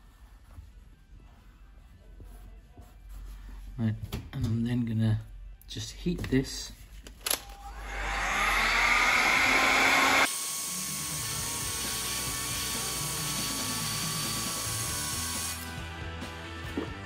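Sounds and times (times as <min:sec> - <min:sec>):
heat gun motor whine: 0:07.6 - 0:15.6
background music: 0:10.4 - 0:17.0.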